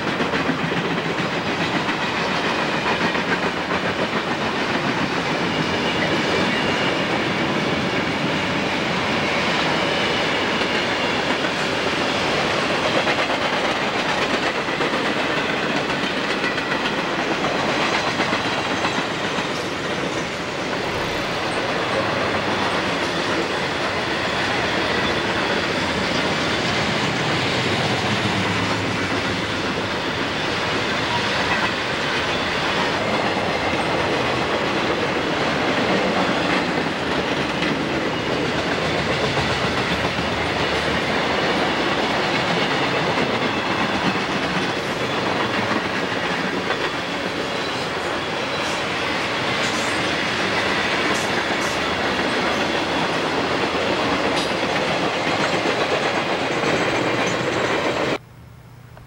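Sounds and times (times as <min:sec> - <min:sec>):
freight train wheels on rails: 0:00.0 - 0:58.2.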